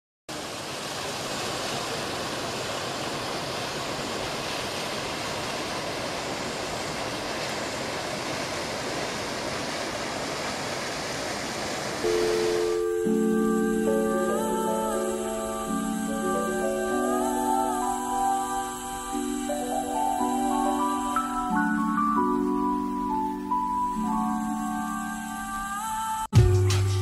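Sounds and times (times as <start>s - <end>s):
background music: 12.1s - 27.0s.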